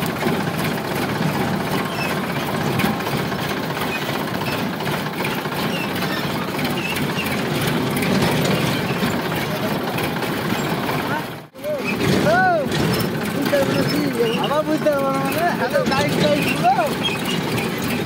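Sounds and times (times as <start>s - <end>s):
tractor diesel engine clattering: 0.0s - 18.0s.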